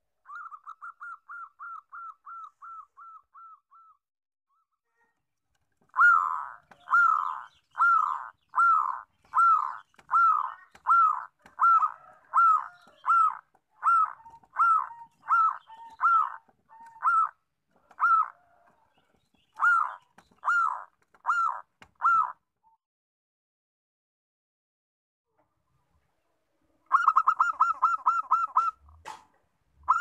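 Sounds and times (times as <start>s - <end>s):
dove cooing: 0.2s - 4.0s, 5.8s - 22.4s, 26.9s - 29.2s.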